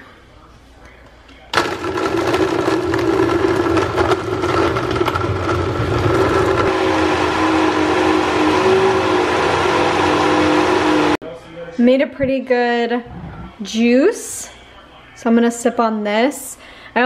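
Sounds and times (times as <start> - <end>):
frozen chunks clattering in cup: 1.6 - 6.7
blender whining: 1.6 - 11.2.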